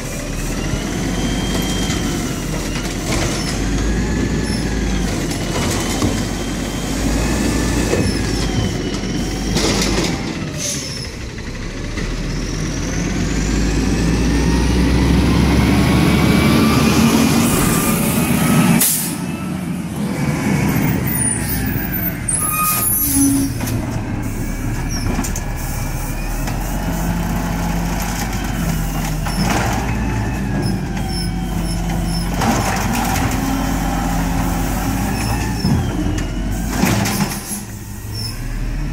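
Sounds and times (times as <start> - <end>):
air brakes hissing: 10.5 - 11.2, 18.8 - 19.3, 22.3 - 27.1.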